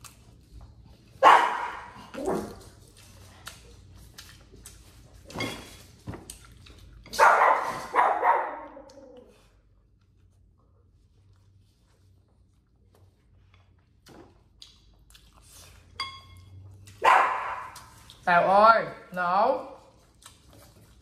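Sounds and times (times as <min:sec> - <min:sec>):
dog barking: 0:01.2 - 0:02.5, 0:07.1 - 0:08.8, 0:17.0 - 0:17.9.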